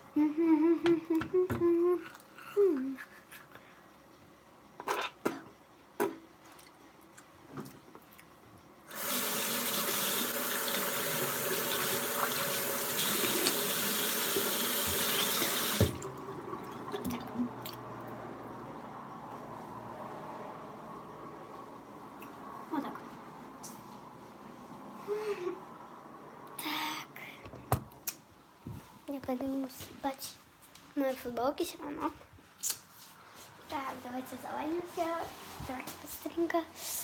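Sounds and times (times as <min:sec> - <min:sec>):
tap running into sink: 0:09.1 - 0:16.1.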